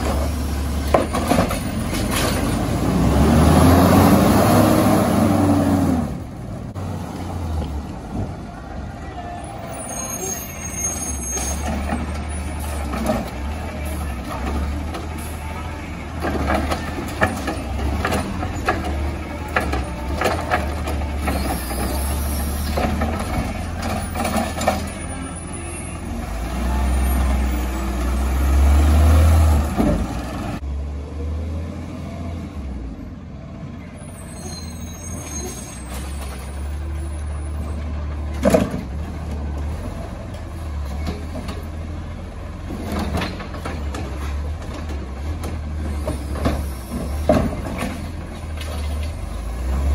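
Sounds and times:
machinery clanks and knocks: 0.0s - 2.7s, 11.4s - 15.5s, 16.1s - 25.2s, 37.7s - 41.9s, 42.6s - 49.3s
diesel truck engine running: 0.0s - 34.3s.

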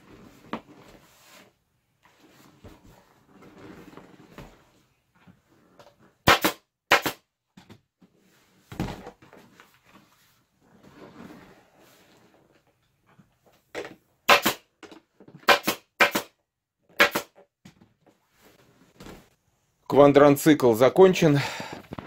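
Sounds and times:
staple gun shots: 6.3s - 7.2s, 14.3s - 14.6s, 15.5s - 16.3s, 17.0s - 17.3s.

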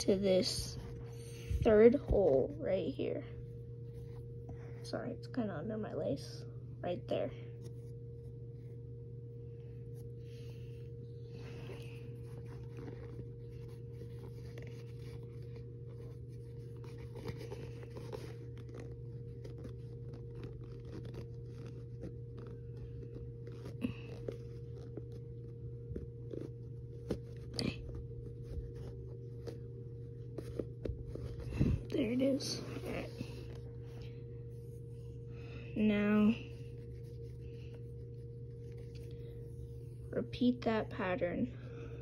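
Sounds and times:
steady low hum: 0.0s - 42.0s
fingers handling a sneaker: 11.4s - 34.7s.

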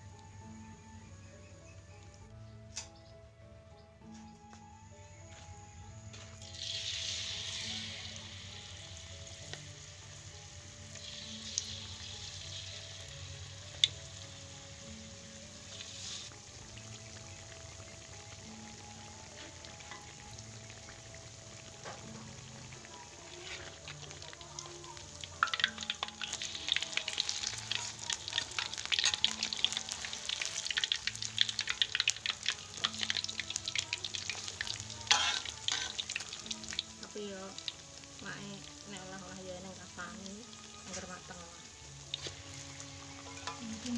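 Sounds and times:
faint background music: 0.0s - 43.9s
battered fruit sizzling in oil: 6.1s - 43.9s
metal spoon clicking on wok: 25.4s - 27.0s, 35.1s - 36.1s.

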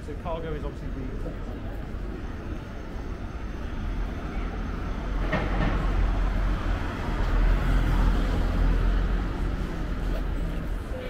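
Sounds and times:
heavy vehicle rumbling past: 3.2s - 11.0s.

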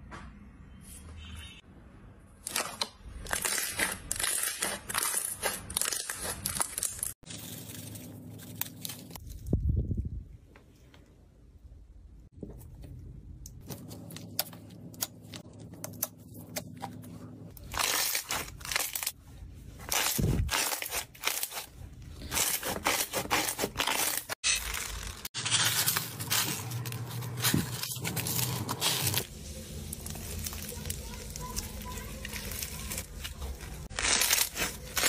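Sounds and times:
foam bead slime crunching: 2.5s - 9.5s, 17.5s - 35.0s.

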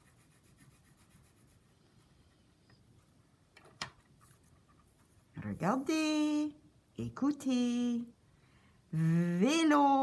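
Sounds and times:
crayon scratching on paper: 0.0s - 1.7s.

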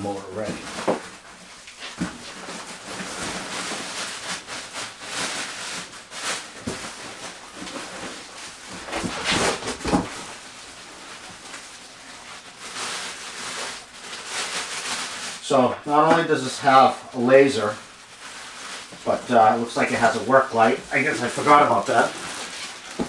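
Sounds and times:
packaging rustling and scraping: 0.1s - 23.0s.

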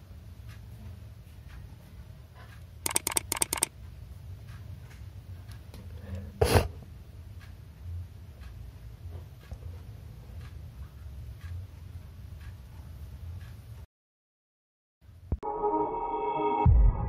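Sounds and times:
plastic lure clicking: 2.9s - 3.7s.

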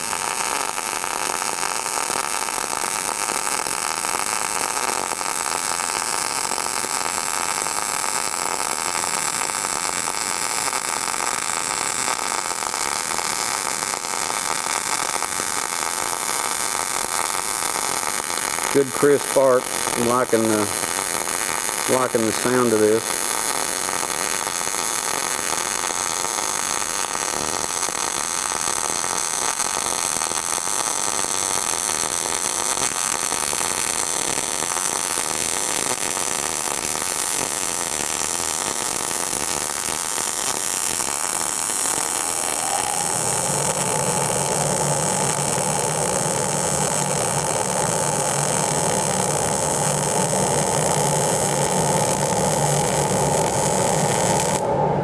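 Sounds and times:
welding arc crackle and hiss: 0.0s - 54.7s
steady hum: 18.3s - 21.0s, 41.2s - 55.0s.

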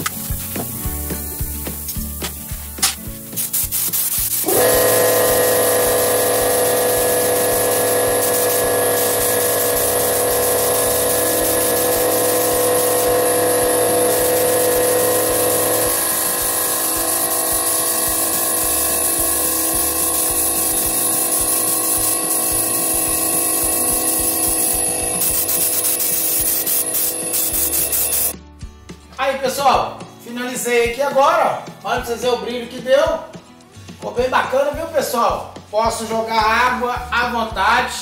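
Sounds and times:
paint spray gun hissing: 0.0s - 28.4s.

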